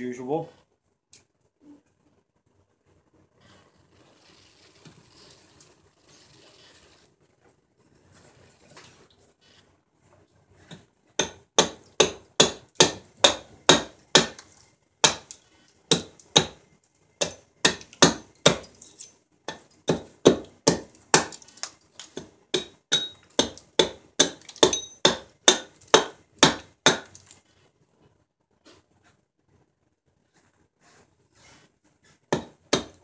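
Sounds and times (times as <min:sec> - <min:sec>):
hatchet chopping wood: 0:10.7 - 0:14.4, 0:15.0 - 0:16.6, 0:17.2 - 0:18.8, 0:19.5 - 0:27.2, 0:32.3 - 0:33.0.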